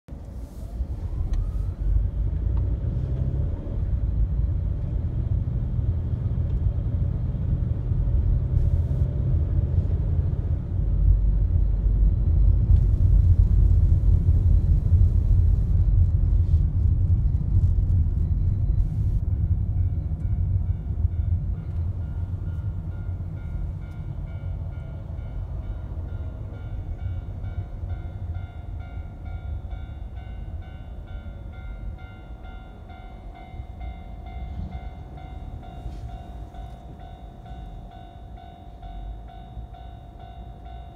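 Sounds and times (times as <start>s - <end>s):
car cabin road rumble: 0.1s - 24.5s
level crossing warning bell: 19.2s - 40.9s.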